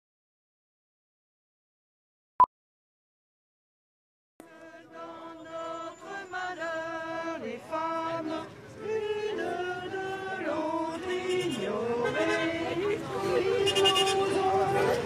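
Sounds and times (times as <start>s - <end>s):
voices singing slow chant: 4.4s - 15.0s.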